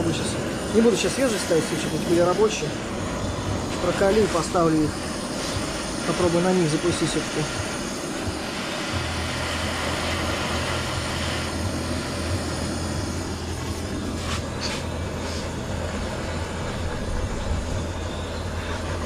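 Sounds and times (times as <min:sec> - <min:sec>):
gas torch flame burning: 0:00.0 - 0:19.0
low rumble: 0:07.8 - 0:18.9.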